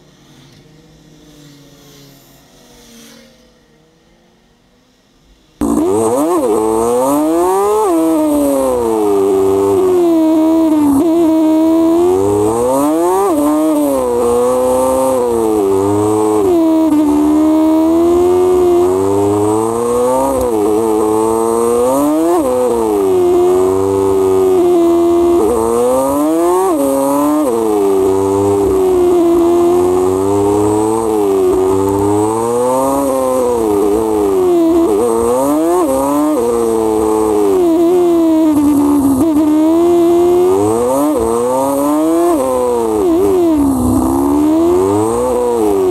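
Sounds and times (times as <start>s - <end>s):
motorcycle engine revving: 5.6s - 45.9s.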